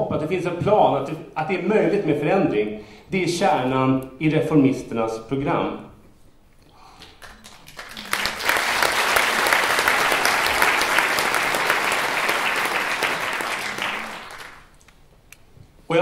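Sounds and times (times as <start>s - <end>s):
audience applause: 7.1s - 14.8s.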